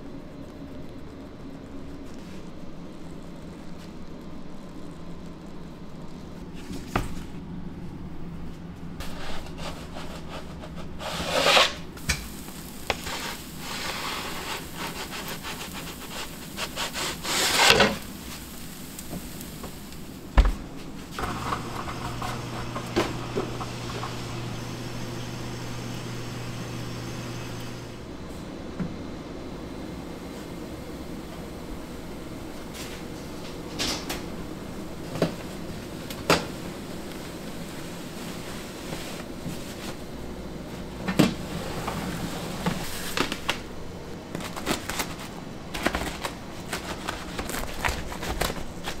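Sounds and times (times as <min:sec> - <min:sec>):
steady low hum: 0:00.0 - 0:11.0, 0:11.7 - 0:49.0
rubbing and scraping: 0:09.0 - 0:12.0, 0:12.9 - 0:18.5, 0:20.9 - 0:27.8.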